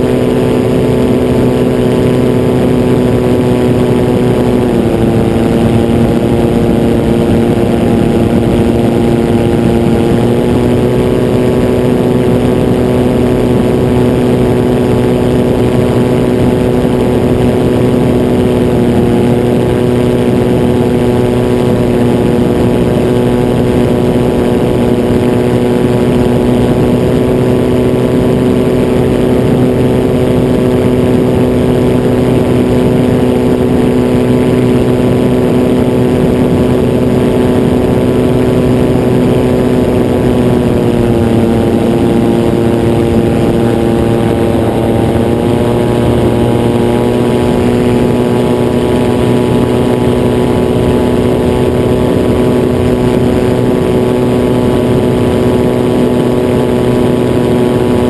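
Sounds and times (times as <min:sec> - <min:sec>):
aircraft engine and propeller: 0:00.0 - 0:58.0.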